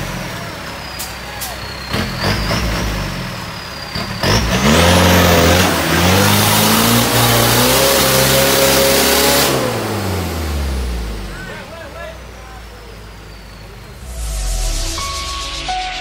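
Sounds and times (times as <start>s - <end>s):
vehicle engine revving hard: 1.9s - 11.3s.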